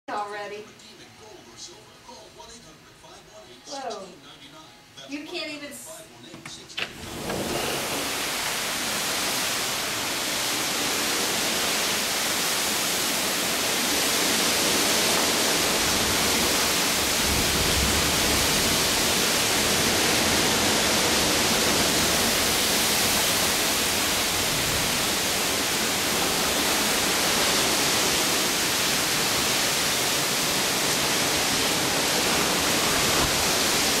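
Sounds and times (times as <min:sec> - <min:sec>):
heavy rain pouring: 0:06.9 - 0:34.0
low rumble of wind gust: 0:07.0 - 0:34.0.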